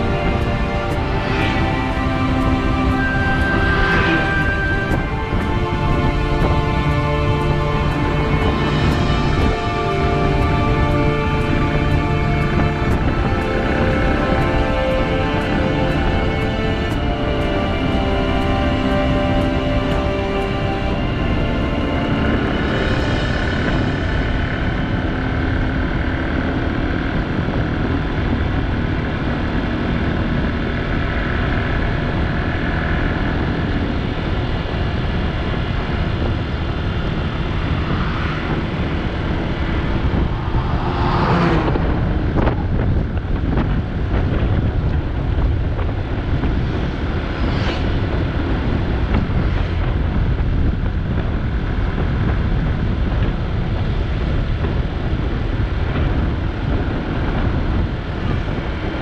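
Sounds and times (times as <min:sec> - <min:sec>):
wind rush on microphone: 0:00.0 - 0:59.0
truck passing whoosh: 0:36.2 - 0:44.3.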